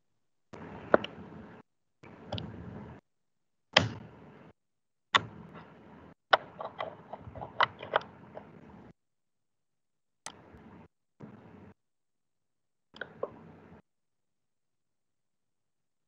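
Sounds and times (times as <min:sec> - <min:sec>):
sharp clicks and knocks: 0:05.1 - 0:08.7.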